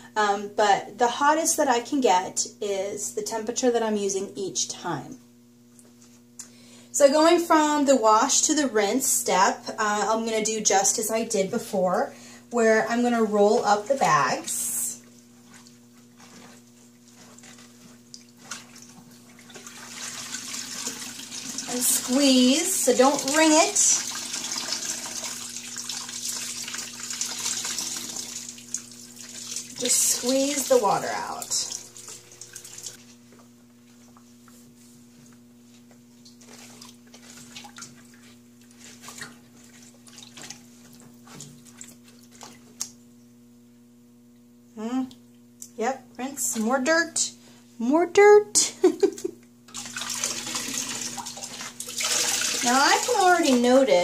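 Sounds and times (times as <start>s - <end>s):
soft wet handling: 13.3s - 20.5s, 31.4s - 43.2s.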